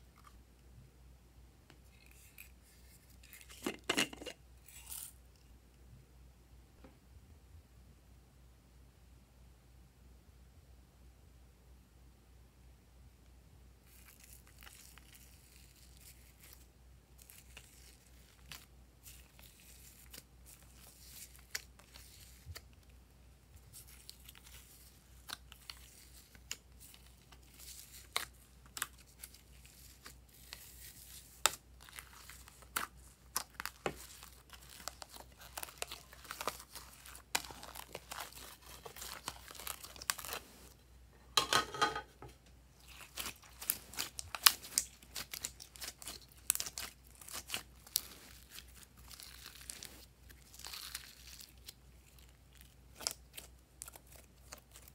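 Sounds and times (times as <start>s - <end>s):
slime crackling and popping: 23.6s - 40.4s, 42.8s - 54.9s.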